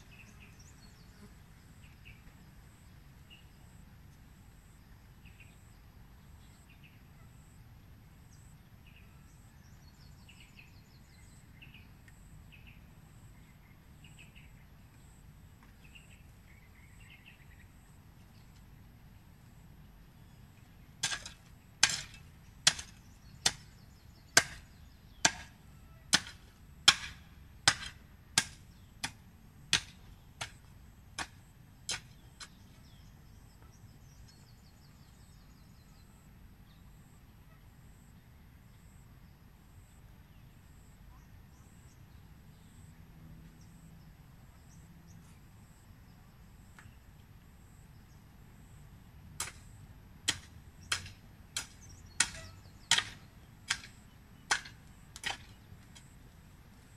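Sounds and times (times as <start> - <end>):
hoe chopping into soil: 21.0 - 23.7, 24.3 - 30.6, 31.2 - 32.6, 50.3 - 56.2.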